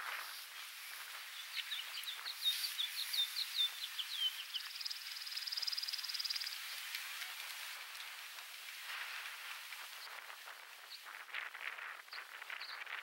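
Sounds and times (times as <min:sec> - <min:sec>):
steady outdoor hiss: 0:00.0 - 0:13.0
songbird chirping: 0:00.6 - 0:06.9
high buzzing bird trill: 0:01.2 - 0:06.6.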